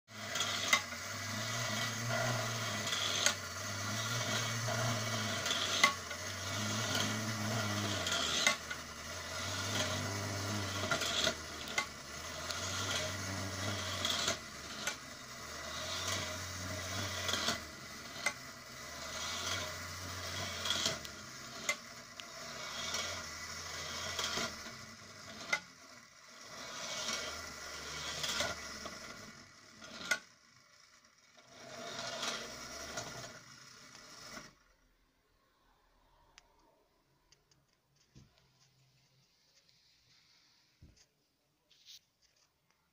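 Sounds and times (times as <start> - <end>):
tinny toy mechanism clack: 0.1 - 30.3
clockwork spring motor whirring: 0.1 - 35.0.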